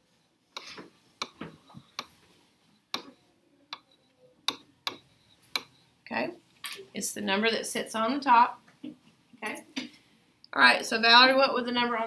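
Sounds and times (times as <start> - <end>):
stylus tapping on touchscreen glass: 4.5 - 5.7.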